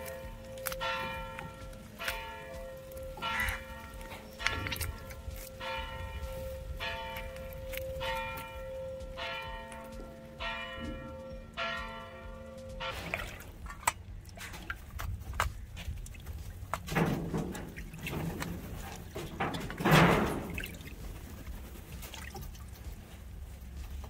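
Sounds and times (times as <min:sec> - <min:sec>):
bell struck repeatedly: 0:00.0 - 0:13.2
sharp clicks and knocks: 0:13.6 - 0:21.1.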